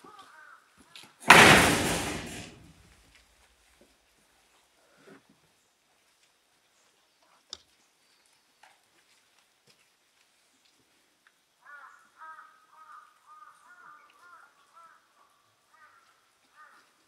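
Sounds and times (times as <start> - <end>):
crows cawing: 0.0 - 1.1, 11.6 - 17.0.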